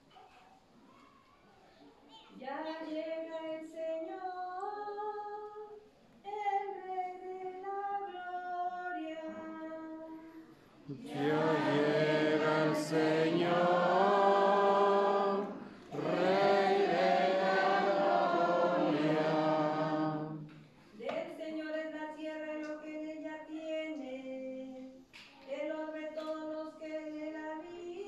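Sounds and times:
group of voices singing: 10.9s - 20.6s.

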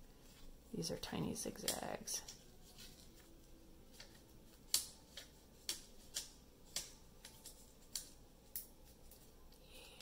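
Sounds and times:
scissors snipping paper: 3.9s - 10.0s.

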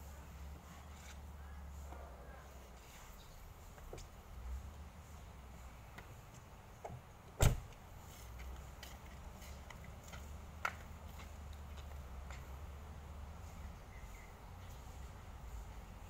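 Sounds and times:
car door thump: 7.4s - 7.7s.

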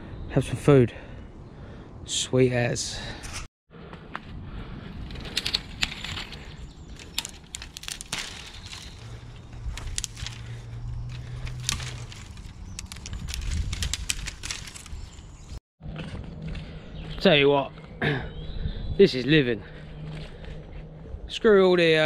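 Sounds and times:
sticks and twigs snapping: 5.1s - 15.6s
leaf litter rustling: 5.3s - 15.6s.

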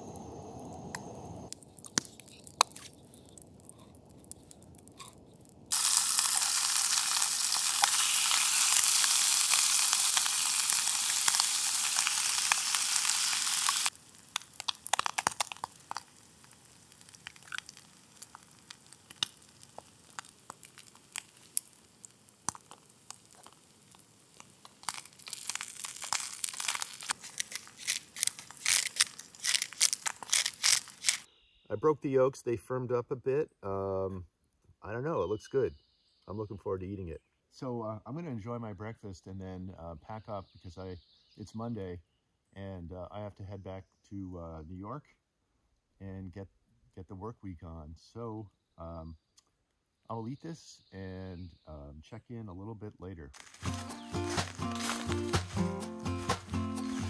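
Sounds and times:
oil crackling and spitting: 0.0s - 31.3s, 53.4s - 57.0s
eggs cracked over pan: 0.9s - 31.3s
hash sizzling in frying pan: 1.5s - 31.3s, 53.4s - 57.0s.

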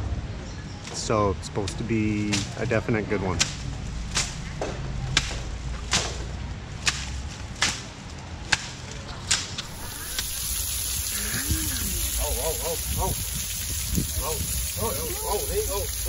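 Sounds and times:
leafy stalks slapping ground: 3.3s - 16.0s
water spraying hiss: 9.6s - 16.0s.

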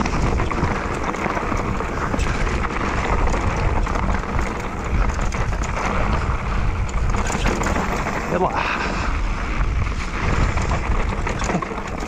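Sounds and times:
stones and bike rattling: 0.0s - 12.0s
tyres rolling over gravel: 0.0s - 12.0s
wind rush on microphone: 0.0s - 12.0s.

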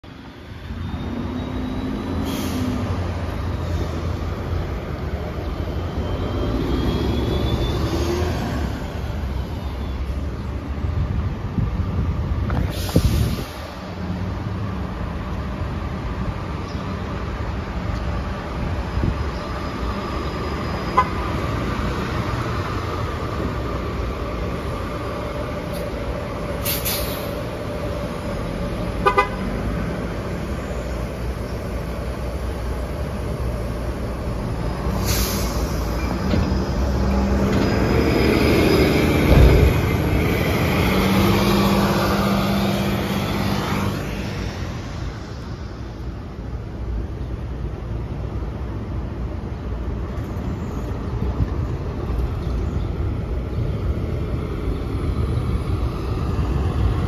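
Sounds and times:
bus engine drone: 0.0s - 57.0s
air brake hisses: 2.1s - 2.9s, 12.6s - 13.7s, 26.6s - 27.4s, 34.9s - 36.2s
bus horn toots: 20.9s - 21.2s, 29.0s - 29.6s.

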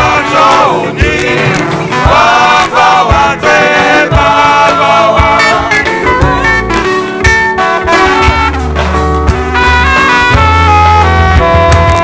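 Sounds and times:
saxophone: 0.0s - 2.6s, 5.4s - 12.0s
choir singing a hymn: 0.0s - 6.9s
bass: 0.0s - 12.0s
steady drum beat: 0.0s - 12.0s.

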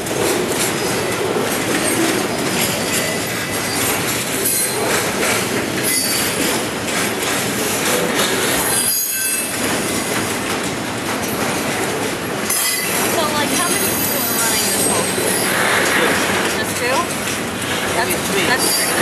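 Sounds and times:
freight train wheels rumbling: 0.0s - 19.0s
high wheel squeals: 1.8s - 4.9s, 5.8s - 6.5s, 8.6s - 9.6s, 13.7s - 16.2s, 18.4s - 19.0s.

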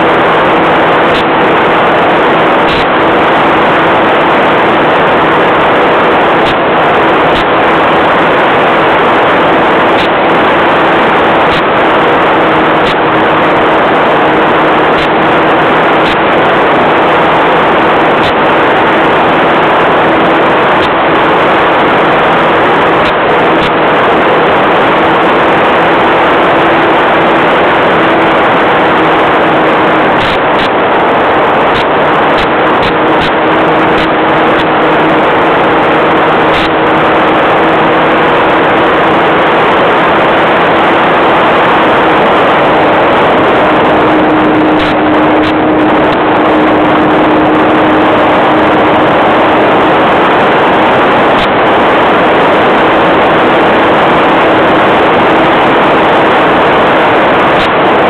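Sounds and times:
heavy rush of noise: 0.0s - 58.0s
model airplane engine running: 0.0s - 58.0s.

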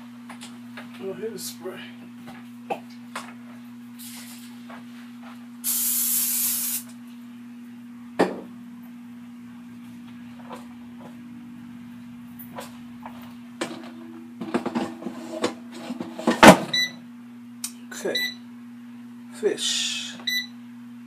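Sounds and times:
oil spray hissing: 5.6s - 6.9s.

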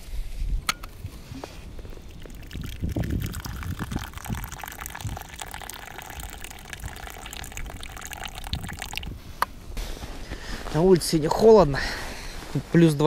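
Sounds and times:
tea pouring into a cup: 1.8s - 9.2s.

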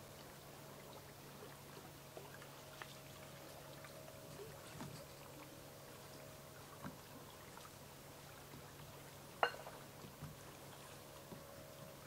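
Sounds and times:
low steady hum: 0.0s - 12.0s
small clicks and trickles: 2.2s - 5.5s.

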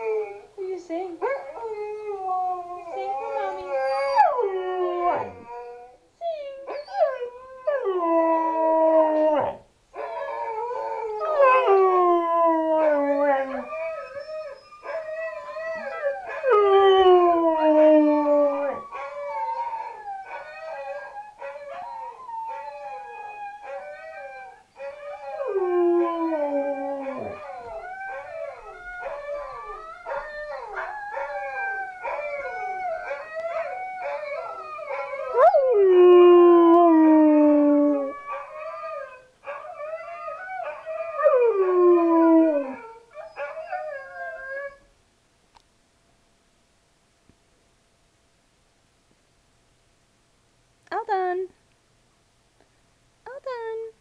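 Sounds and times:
dogs howling: 1.7s - 5.9s, 6.7s - 44.8s.

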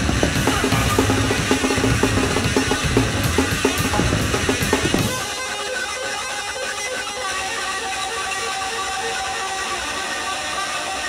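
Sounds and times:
distorted electric bass: 0.0s - 5.4s
fast drumming: 0.0s - 5.5s.

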